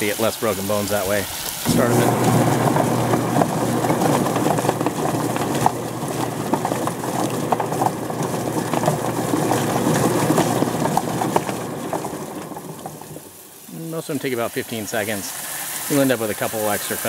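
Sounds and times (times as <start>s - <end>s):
water spraying: 0.0s - 17.0s
electric motor hum: 1.2s - 13.4s.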